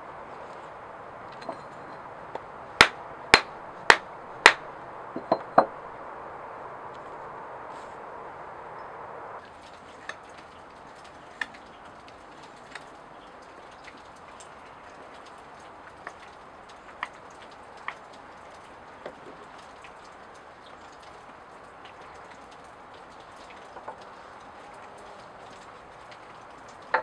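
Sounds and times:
soft outdoor hiss: 0.0s - 27.0s
faint ticks and taps: 15.1s - 27.0s.

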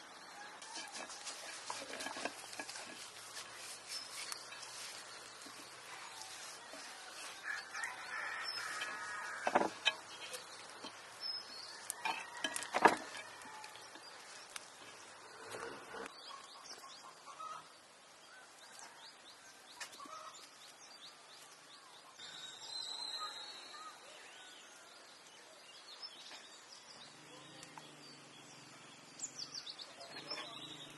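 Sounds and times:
small birds chirping: 0.0s - 12.5s, 13.4s - 30.9s.

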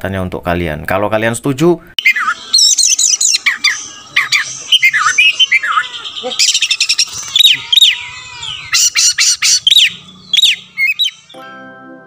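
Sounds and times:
bird singing whistled notes: 2.0s - 11.4s
sharp bird clicking notes: 6.4s - 11.4s.

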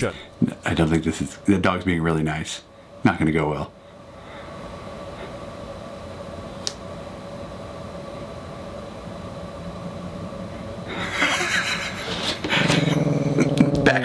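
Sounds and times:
mechanical hum with tones: 0.0s - 14.0s
loud rough noise: 10.9s - 14.0s.

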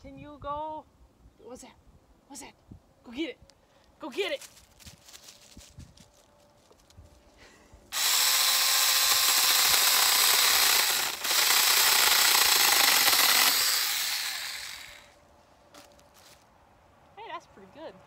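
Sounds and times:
electric mini chainsaw cutting: 7.9s - 15.2s.

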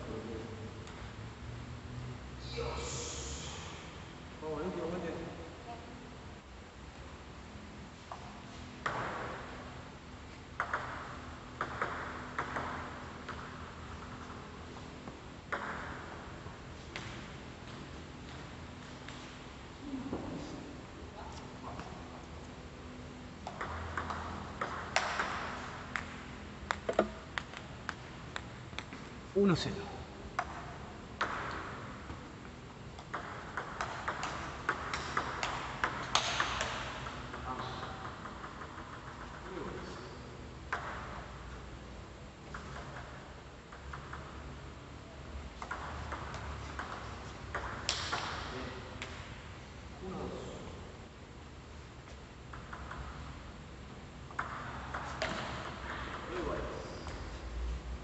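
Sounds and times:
table tennis ball clicking: 33.0s - 37.4s.

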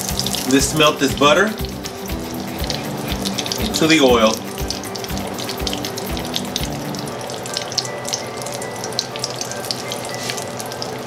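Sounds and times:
butter sizzling in oil: 0.0s - 11.0s.

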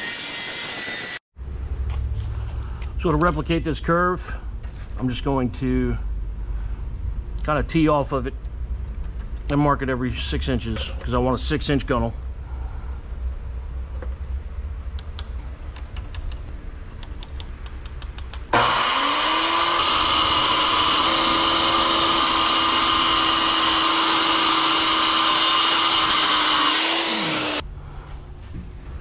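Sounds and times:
circular saw cutting plywood: 0.0s - 1.2s, 18.5s - 27.6s.

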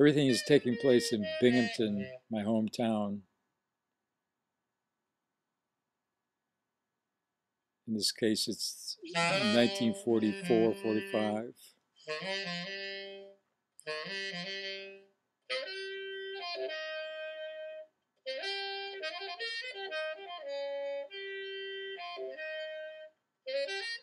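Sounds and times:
wind instrument melody: 0.0s - 3.1s, 8.8s - 24.0s.

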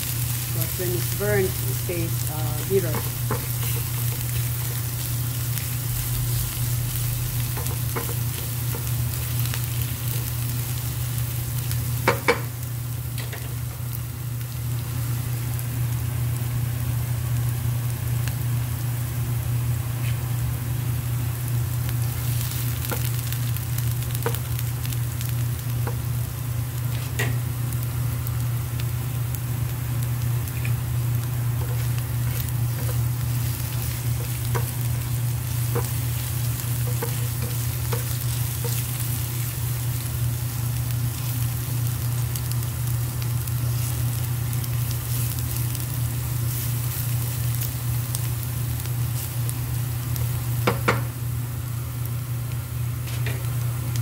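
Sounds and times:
low hum: 0.0s - 14.8s
garlic sizzling in oil: 0.0s - 54.0s.

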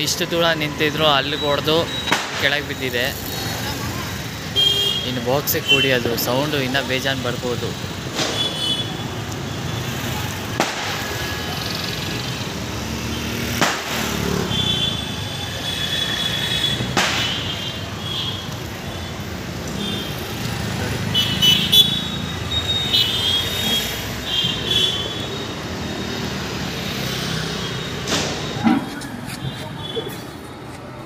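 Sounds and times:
street traffic: 0.0s - 31.0s
firecracker bangs: 2.1s - 2.5s, 10.5s - 11.2s, 13.5s - 14.1s, 16.8s - 17.7s, 28.0s - 28.8s.

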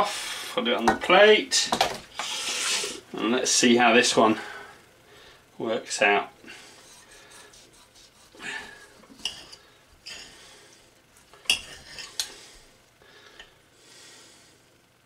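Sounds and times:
knife sawing through meat: 6.8s - 8.4s.

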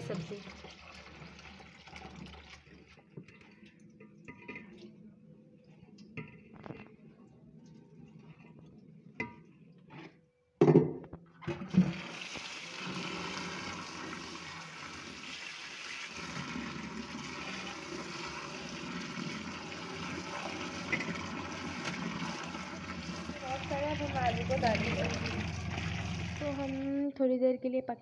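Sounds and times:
tap water running into pot: 0.0s - 4.8s, 11.5s - 26.9s.

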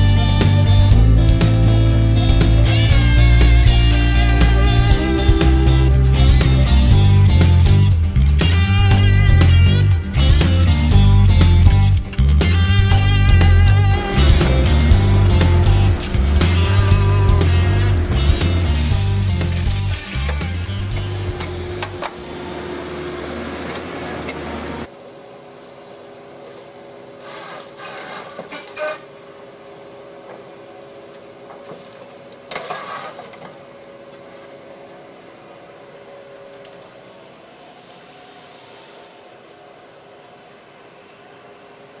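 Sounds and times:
excavator engine and hydraulics: 0.0s - 42.0s
felling head cutting brush: 12.5s - 22.0s.

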